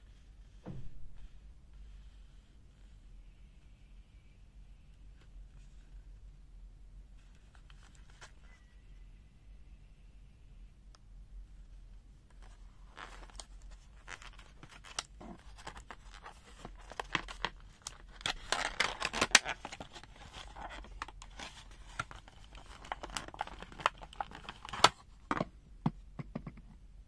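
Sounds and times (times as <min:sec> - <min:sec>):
plastic packaging crackling and snapping: 0:12.3 - 0:25.4.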